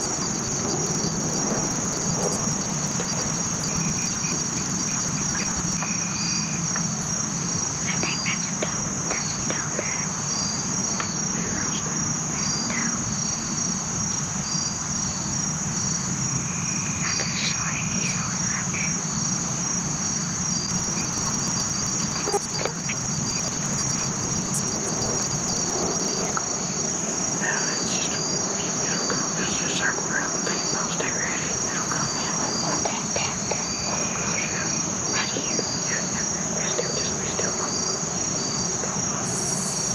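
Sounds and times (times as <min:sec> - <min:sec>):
high-pitched insect chorus: 0:00.0 - 0:39.9
slow insect chirp: 0:00.0 - 0:39.9
faint short calls: 0:20.7 - 0:26.4.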